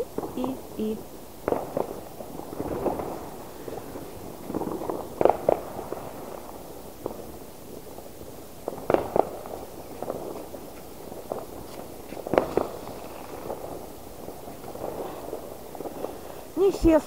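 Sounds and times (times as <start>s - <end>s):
faint firework pops: 0.0s - 0.7s, 1.4s - 16.8s
fireworks bangs: 0.0s - 17.0s.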